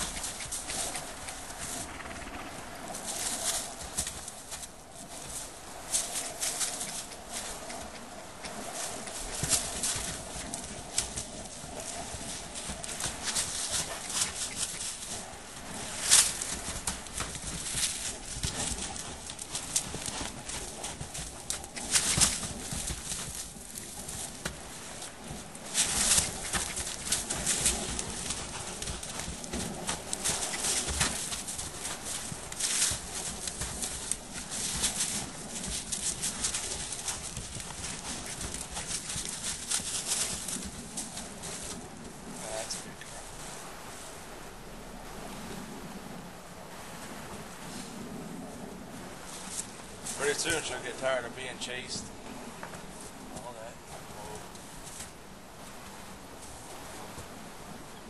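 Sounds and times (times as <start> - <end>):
hooves crunching in snow: 0.0 - 58.0.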